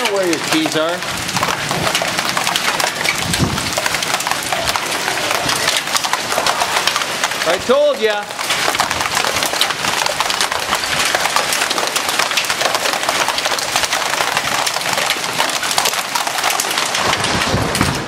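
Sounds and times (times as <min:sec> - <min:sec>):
hail clattering on hard surfaces: 0:00.0 - 0:18.0.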